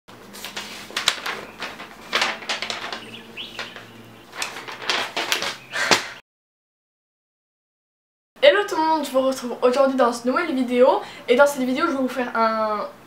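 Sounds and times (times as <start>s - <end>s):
paper rustling and crinkling: 0.1s - 6.1s.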